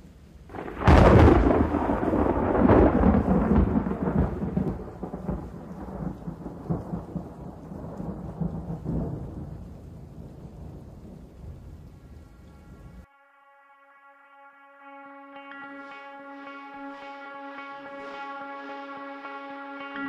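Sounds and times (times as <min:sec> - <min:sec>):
rain falling: 0:00.0 - 0:13.1
thunder crack and rumble: 0:00.5 - 0:12.3.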